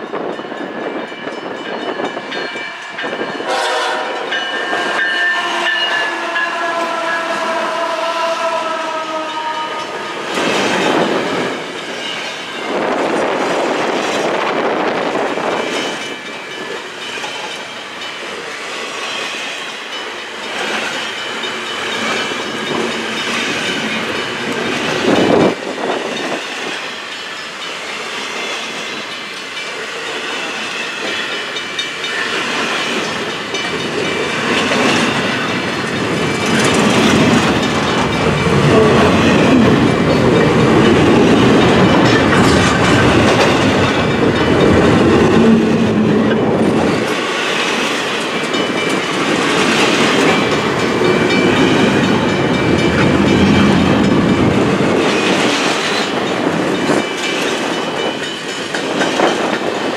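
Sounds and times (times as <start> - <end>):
freight train rumbling past: 0.0 - 59.9
wheels clacking over rail joints: 15.1 - 59.9.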